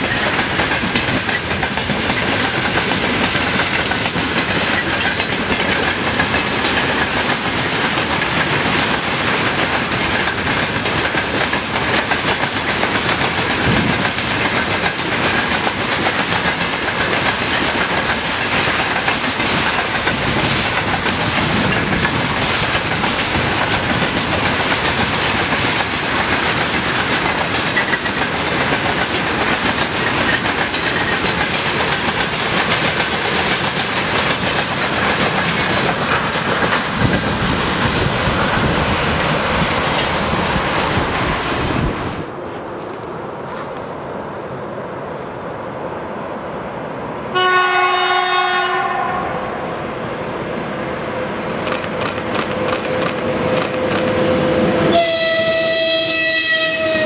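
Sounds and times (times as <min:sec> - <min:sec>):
wheels clattering over rail joints: 0:00.0 - 0:38.8
freight train rolling past: 0:00.0 - 0:57.0.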